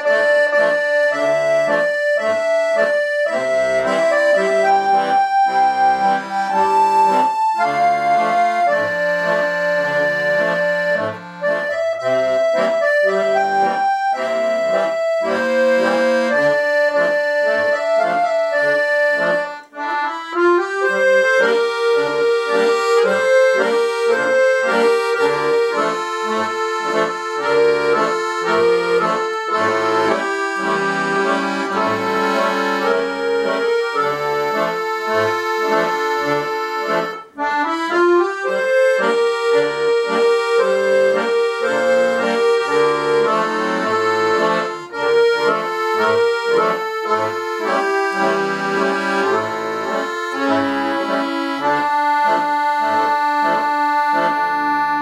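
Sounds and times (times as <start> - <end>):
piano accordions playing a duet: 0.0 - 55.0.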